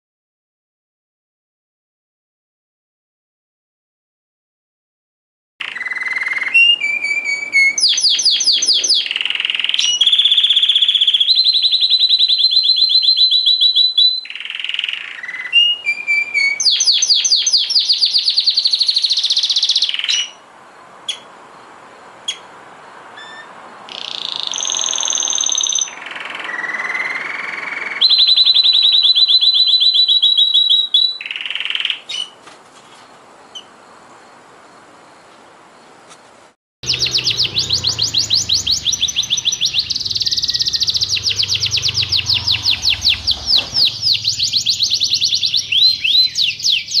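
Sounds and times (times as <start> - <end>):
canaries singing trills: 5.6 - 34.4, 35.1 - 47.0
low hum: 36.8 - 46.4.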